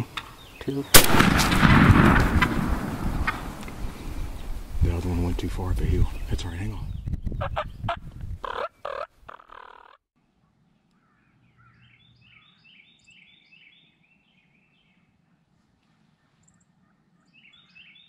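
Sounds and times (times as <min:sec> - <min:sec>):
distant turkey gobbling: 0:03.0 - 0:04.0, 0:07.4 - 0:10.0
turkey gobbling: 0:07.4 - 0:10.0.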